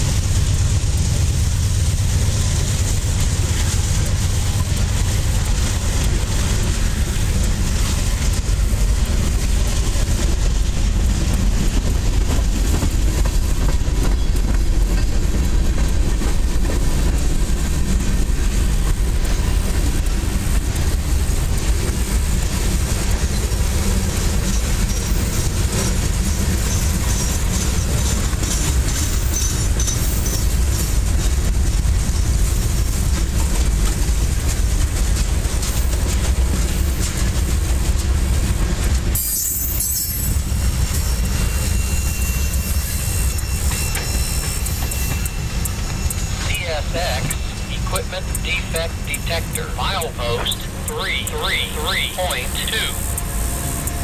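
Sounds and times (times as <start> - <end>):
freight train rolling past: 0.0 - 54.0
steel wheels rumbling on rail: 0.0 - 54.0.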